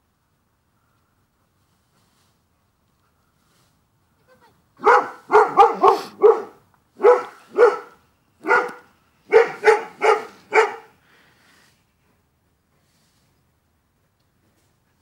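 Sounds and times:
dog barking: 4.8 - 11.0.

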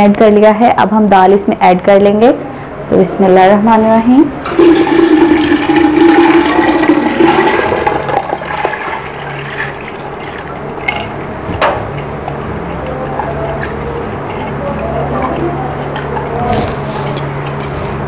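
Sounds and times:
lentils and water splashing: 4.5 - 11.2.

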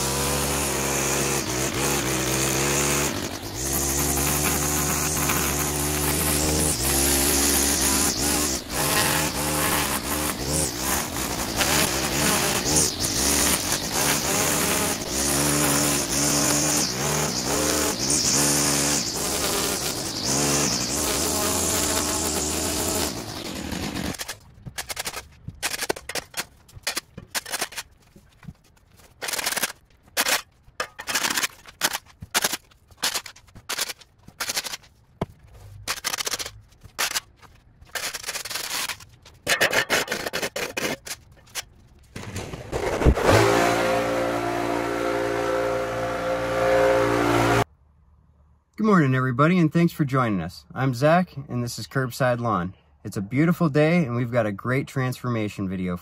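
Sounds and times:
engine buzzing: 0.0 - 24.3, 42.6 - 47.7.

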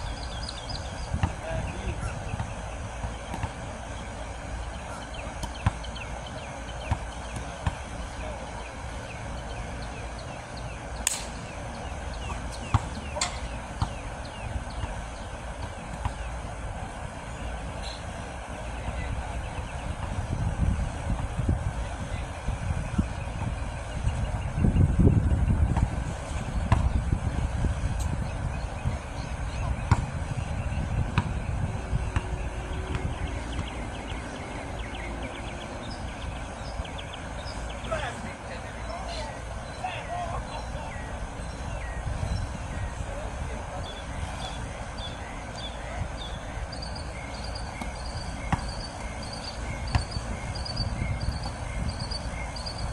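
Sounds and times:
bird chirping: 0.0 - 3.4, 28.0 - 38.0, 43.8 - 52.9
basketball bouncing on hard court: 1.2 - 1.4, 29.8 - 30.2, 48.5 - 48.8, 49.9 - 50.2
wind on microphone: 19.1 - 37.4, 41.1 - 45.3, 49.6 - 52.9
basketball thuds: 29.9 - 30.2.

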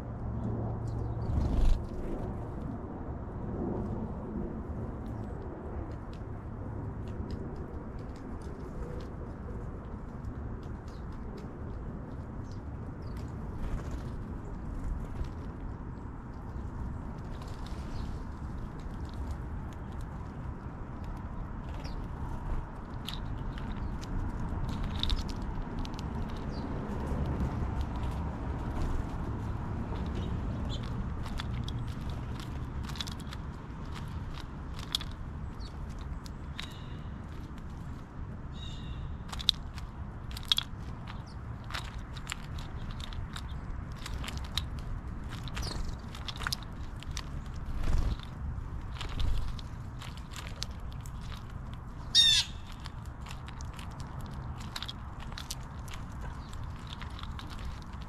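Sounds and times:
steady low rumble: 0.0 - 58.0
birds pecking in seed hulls: 0.3 - 2.8, 3.8 - 58.0
wings fluttering: 0.8 - 2.6, 9.9 - 38.1, 39.3 - 58.0
sparrow chirps: 30.2 - 31.0, 36.6 - 37.2, 38.5 - 39.2, 45.6 - 46.0, 52.0 - 52.8
high bird chirps: 52.1 - 52.7.

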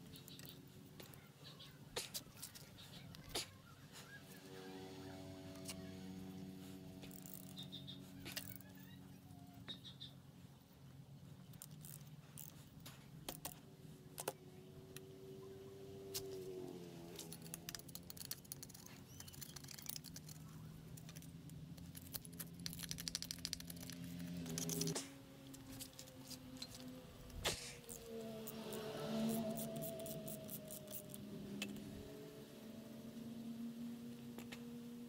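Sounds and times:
steady low hum: 0.0 - 35.0
fast clicks: 17.1 - 31.8.

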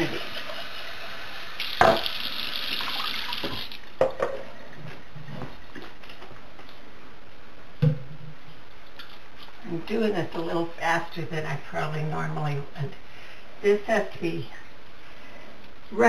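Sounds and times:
water splashing in sink: 1.6 - 4.2.

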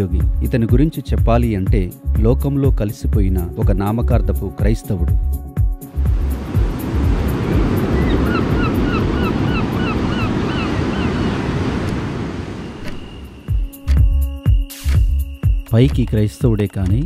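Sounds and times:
ocean surf breaking: 5.9 - 13.8.

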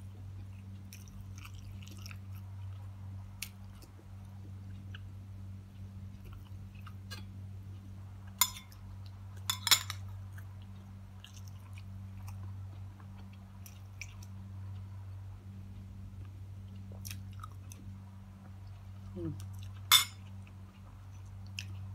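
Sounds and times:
low steady hum: 0.0 - 21.9
chewing with mouth clicks: 0.4 - 5.1, 5.8 - 7.4, 10.0 - 14.9, 15.8 - 21.9
spoon clinking on glass bowl: 8.4 - 8.7, 9.5 - 10.0, 19.9 - 20.2.

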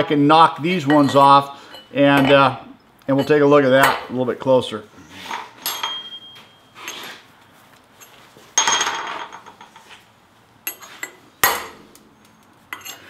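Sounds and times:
metal tools clinking on metal table: 0.8 - 4.1, 5.3 - 7.1, 8.0 - 9.9, 10.6 - 11.8, 12.7 - 13.0.

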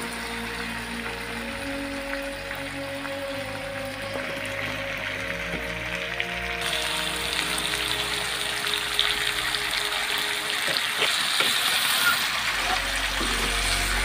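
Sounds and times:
food sizzling in hot oil: 6.6 - 14.0.

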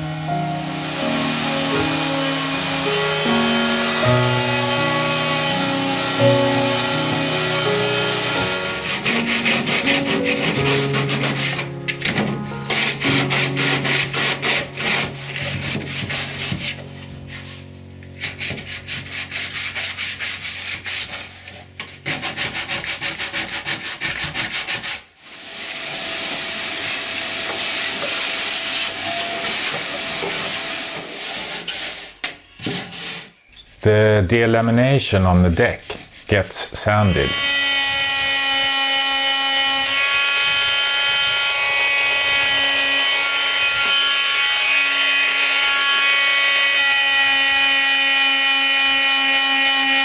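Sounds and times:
power tool whistling: 0.0 - 16.8, 25.2 - 31.2, 37.0 - 50.0
vacuum cleaner running: 0.0 - 17.8, 25.2 - 31.4, 37.0 - 50.0
scraping and rubbing on wood: 0.8 - 25.1, 27.4 - 49.8.

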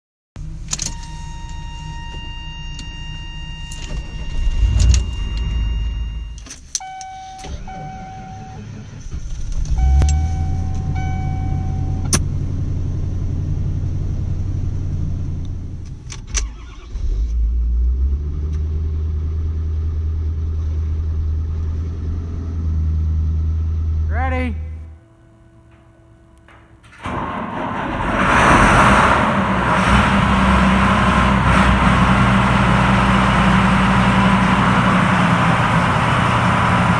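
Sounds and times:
diesel truck engine starting: 0.4 - 36.9
truck engine starting and idling: 0.4 - 36.9
electronic warning tone: 0.9 - 8.7, 9.7 - 12.2
pulsing chime: 2.2 - 8.6, 9.8 - 12.1.

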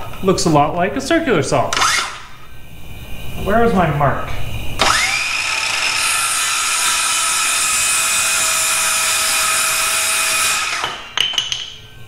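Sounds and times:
circular saw cutting wood: 1.8 - 2.2, 4.8 - 11.2.

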